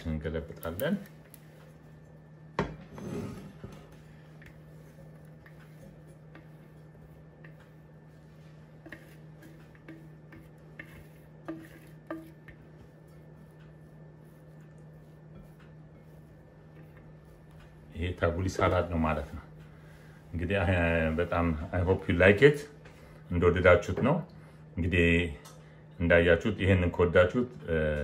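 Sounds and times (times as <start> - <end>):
spatula scraping salad: 3.0 - 17.4
spatula tapping glass: 8.8 - 12.7.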